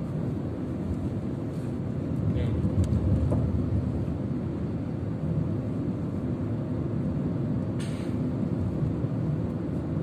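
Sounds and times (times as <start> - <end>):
car engine and road noise: 0.0 - 10.0
brief hiss: 7.8 - 8.2.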